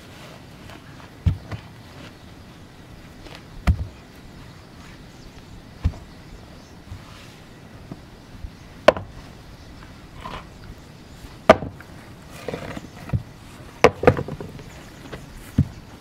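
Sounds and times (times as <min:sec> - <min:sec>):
stones thudding: 0:01.2 - 0:01.8, 0:03.3 - 0:04.0, 0:05.8 - 0:06.1, 0:08.8 - 0:09.2, 0:11.4 - 0:15.8.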